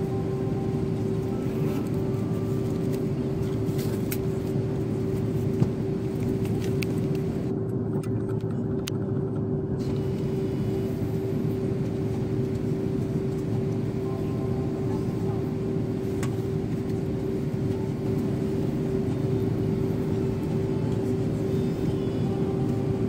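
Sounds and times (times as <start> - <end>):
airliner cabin drone: 0.0 - 23.0.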